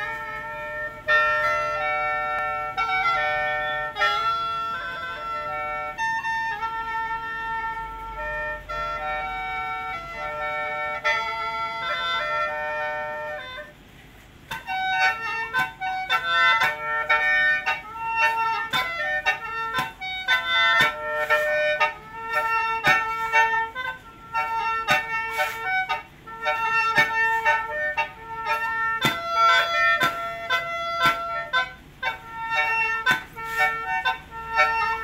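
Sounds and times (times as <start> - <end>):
mouth organ playing over drone: 0.0 - 13.8, 14.5 - 35.0
foot stamps: 14.0 - 35.0.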